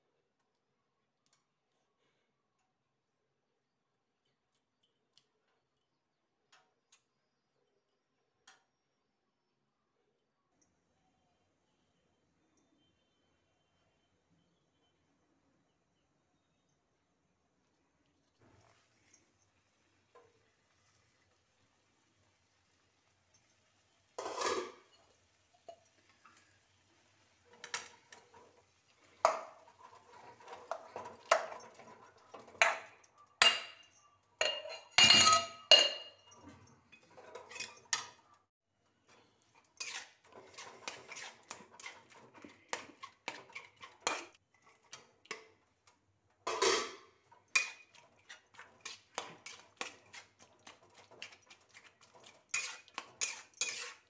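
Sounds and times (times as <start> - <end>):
metal spatula scraping iron pan: 24.2 - 25.1, 27.5 - 33.7, 37.0 - 38.1, 39.1 - 45.0, 46.5 - 54.0.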